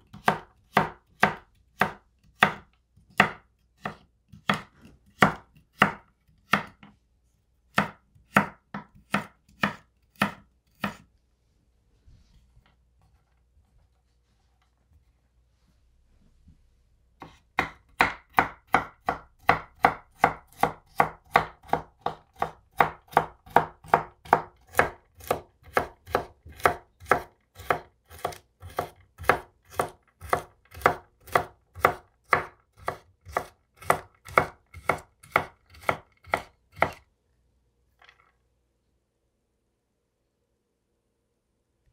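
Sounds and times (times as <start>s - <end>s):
knife chopping on wooden board: 0.0s - 7.0s, 7.7s - 11.0s, 17.2s - 37.0s.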